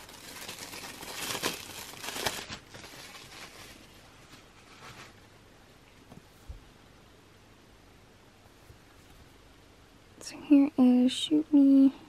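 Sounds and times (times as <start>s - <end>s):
plastic wrapping crinkling: 0.0s - 5.2s.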